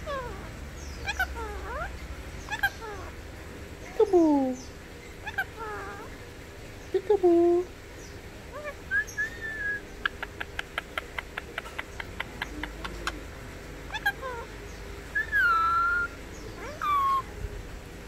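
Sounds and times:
parakeet squawks and whistles: 8.6s - 9.8s, 15.2s - 17.3s.

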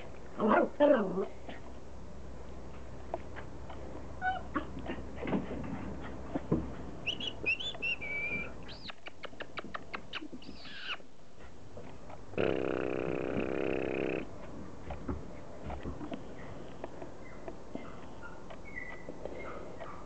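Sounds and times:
puppies whining: 4.2s - 4.8s, 7.0s - 11.1s, 17.2s - 20.0s.

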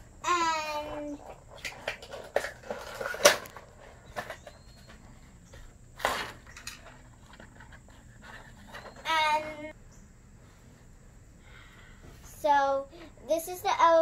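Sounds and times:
plastic and cardboard rustling: 0.8s - 5.1s.

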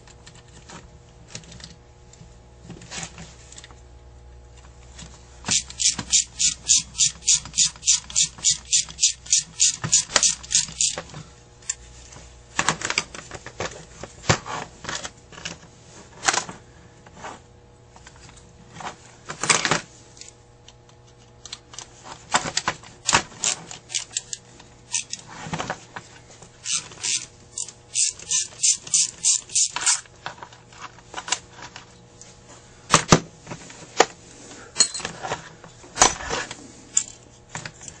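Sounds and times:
rapid even metal clicks: 5.5s - 11.0s, 26.6s - 30.0s
tools scraping metal: 5.5s - 11.1s, 23.4s - 25.3s, 26.6s - 30.1s, 34.8s - 35.2s.

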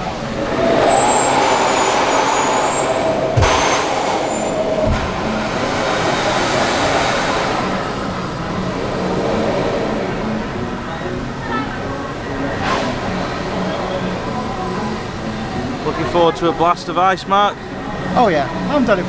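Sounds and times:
amusement ride machinery rushing: 0.0s - 16.3s
thin high squeals: 0.8s - 4.8s.

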